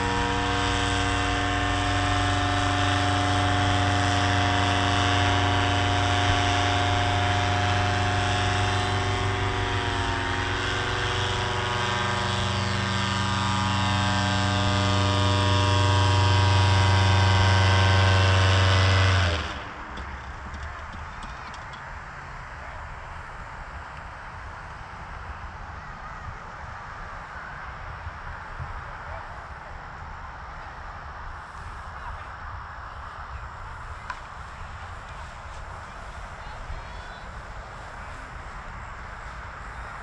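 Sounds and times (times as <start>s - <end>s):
faint background noise: 0.0s - 40.0s
paraglider engine and propeller humming: 0.0s - 40.0s.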